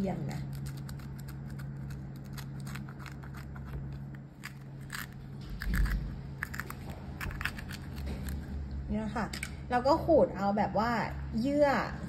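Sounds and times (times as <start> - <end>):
metal spoon scraping pepper: 0.3 - 8.5.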